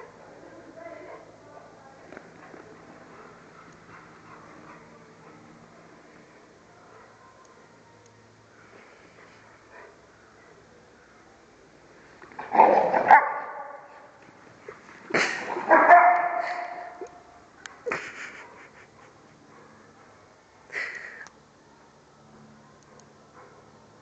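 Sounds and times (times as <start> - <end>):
dog barking with echo: 12.8 - 13.9, 15.7 - 17.0.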